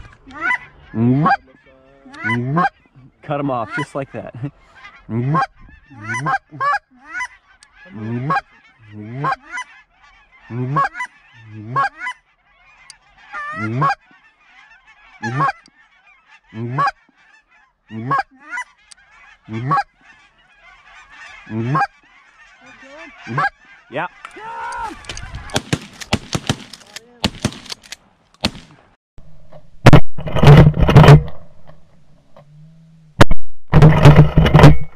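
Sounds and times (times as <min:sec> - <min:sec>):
geese honking faintly: 0:00.0 - 0:24.4
goose calls honking: 0:00.0 - 0:24.4.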